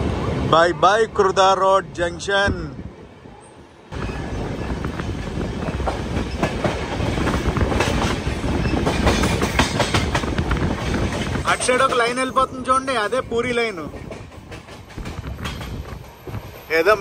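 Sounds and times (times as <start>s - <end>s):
train wheels rumbling: 3.5s - 17.0s
wheels clacking over rail joints: 4.0s - 12.4s, 13.8s - 17.0s.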